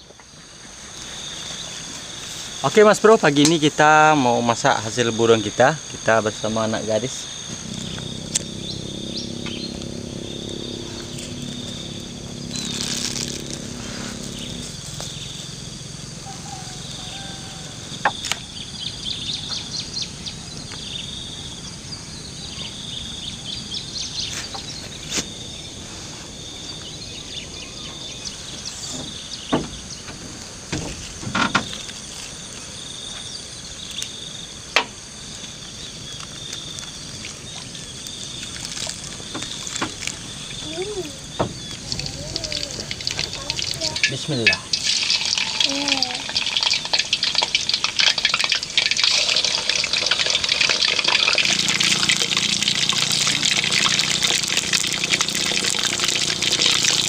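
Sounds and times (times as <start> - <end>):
insects chirping with pulsing trill: 0.0 - 57.0
low hum: 7.2 - 16.2.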